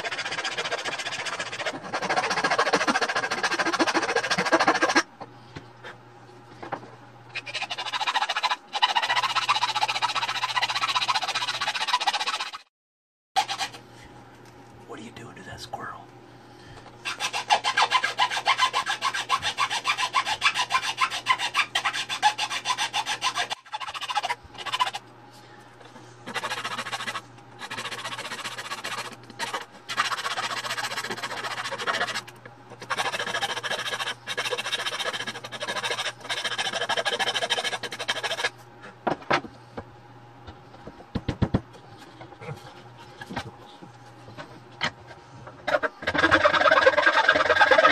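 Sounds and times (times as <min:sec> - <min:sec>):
hand file rasping on wood: 0:00.0 - 0:05.1, 0:07.3 - 0:12.6, 0:13.4 - 0:13.8, 0:17.0 - 0:25.0, 0:26.2 - 0:38.5, 0:45.6 - 0:47.9
faint steady hum: 0:00.0 - 0:12.0, 0:13.4 - 0:47.9.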